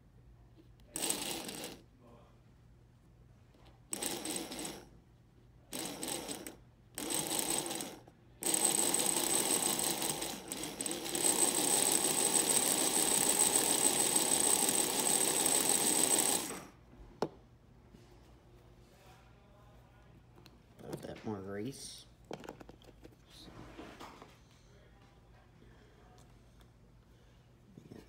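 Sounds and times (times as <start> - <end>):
toy locomotive motor whining: 0.9 - 1.8, 3.9 - 4.8, 5.7 - 16.7.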